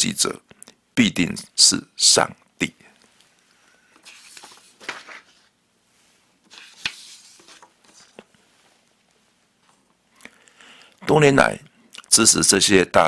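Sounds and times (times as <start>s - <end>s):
paper rustling: 3.9s - 9.9s.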